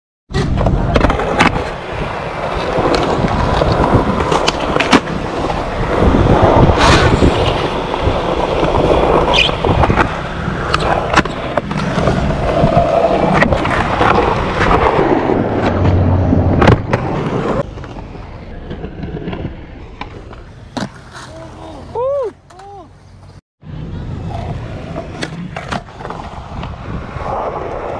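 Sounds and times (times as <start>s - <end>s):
skateboard clacks popping and landing: 0.3s - 5.6s, 6.6s - 21.3s
skateboard wheels rolling on concrete: 0.3s - 27.9s.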